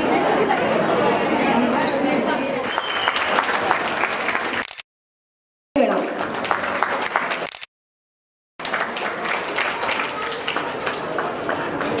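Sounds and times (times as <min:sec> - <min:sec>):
audience applauding: 0:02.6 - 0:04.6, 0:05.8 - 0:07.5, 0:08.6 - 0:12.0.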